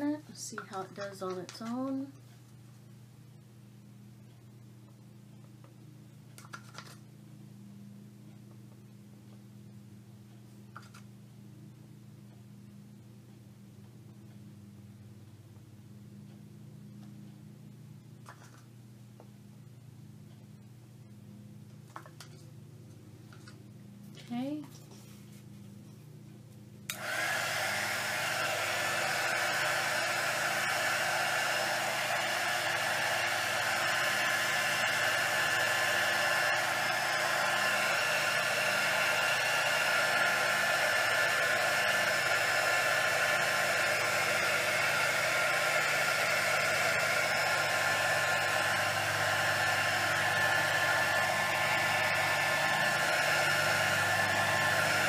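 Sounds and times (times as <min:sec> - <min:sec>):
electric air blower whirring: 0:26.9 - 0:55.0.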